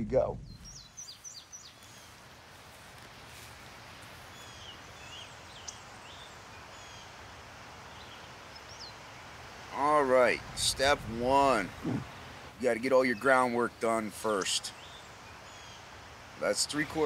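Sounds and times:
small birds chirping: 0:00.3 - 0:17.0
steady background hiss: 0:00.5 - 0:17.0.

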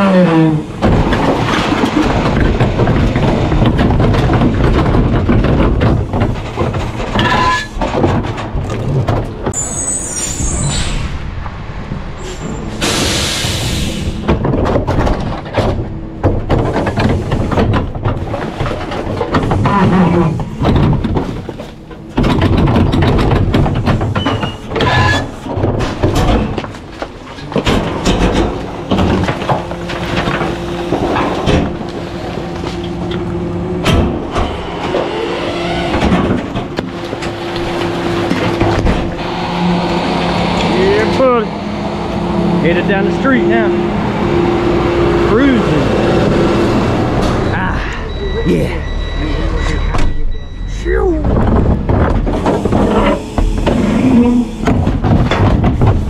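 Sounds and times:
garbage truck engine running: 0:00.0 - 0:56.0
metal clanks and knocks: 0:00.7 - 0:09.6, 0:14.2 - 0:39.2, 0:51.2 - 0:56.0
loud air hiss: 0:12.2 - 0:14.2.

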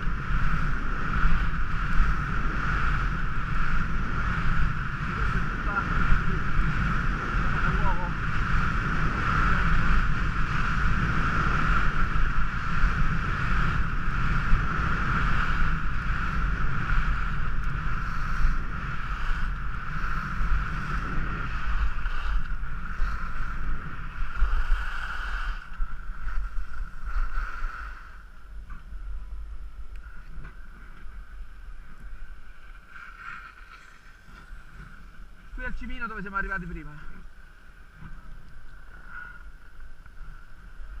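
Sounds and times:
skis running over packed snow: 0:00.0 - 0:28.2
wind rushing over microphone: 0:00.0 - 0:41.0.

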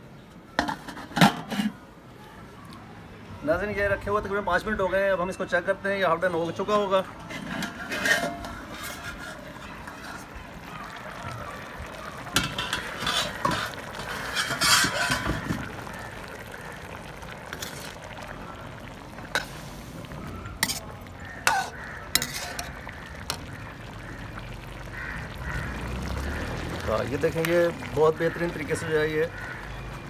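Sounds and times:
ladle clinking against wok: 0:07.2 - 0:10.3, 0:12.4 - 0:15.6
food simmering: 0:07.9 - 0:30.0.

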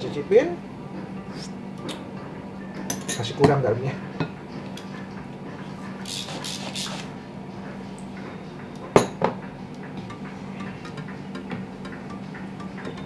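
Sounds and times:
utensils scraping: 0:06.0 - 0:07.1.

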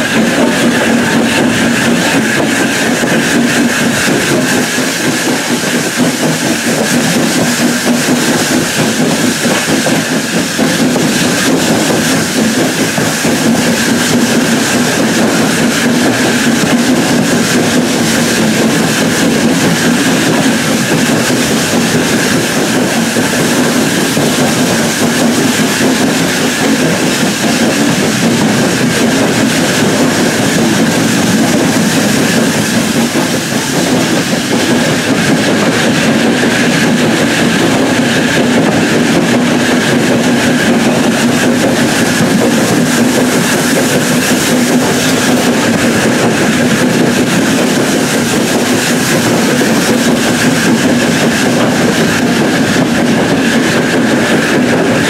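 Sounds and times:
train wheels on track: 0:00.0 - 0:55.0.

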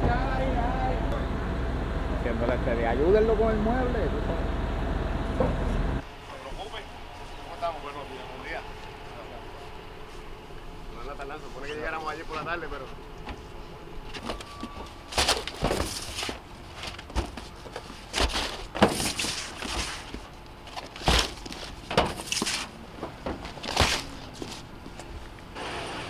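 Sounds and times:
cardboard boxes thumping and scraping: 0:14.2 - 0:24.6.

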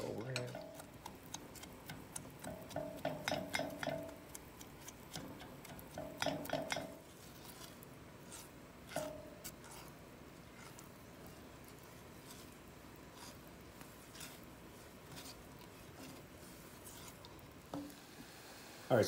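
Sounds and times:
spatula knocking metal saucepan: 0:00.2 - 0:07.1, 0:08.9 - 0:09.4.

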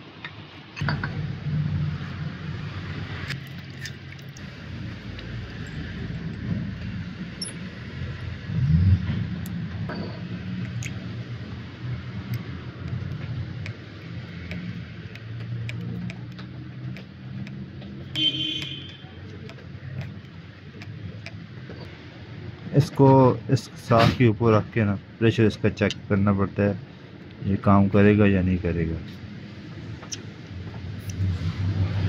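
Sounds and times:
low motor hum: 0:00.8 - 0:21.8.

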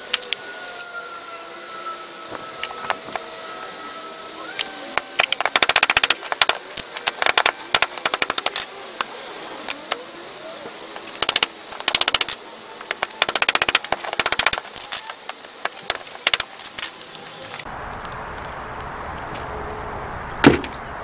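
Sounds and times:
crackling of gritty debris scraped: 0:04.6 - 0:19.5.

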